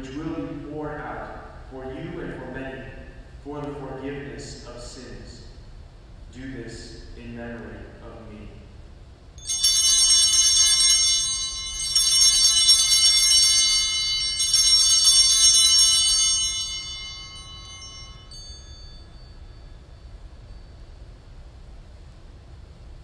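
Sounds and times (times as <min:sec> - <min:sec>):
small bells jangling: 0:09.4 - 0:21.2.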